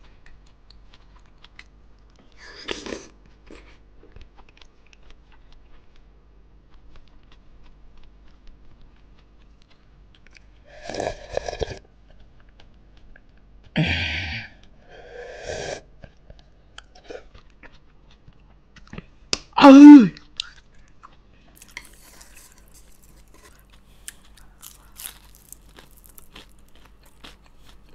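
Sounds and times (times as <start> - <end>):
quiet chewing: 0.1 - 6.1, 6.7 - 13.8, 16.0 - 19.2, 20.2 - 27.9.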